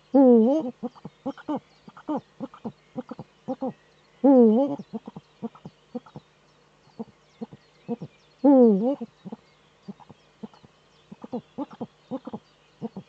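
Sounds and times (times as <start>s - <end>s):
owl clucking notes: 0.2s - 6.2s, 7.0s - 13.0s
owl drawn-out calls: 0.2s - 6.2s, 7.0s - 10.1s, 11.1s - 13.0s.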